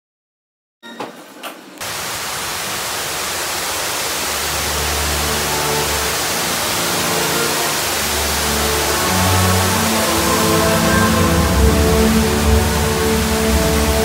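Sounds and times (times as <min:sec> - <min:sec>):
loud rushing hiss: 0:01.8 - 0:14.0
low held music notes: 0:04.9 - 0:14.0.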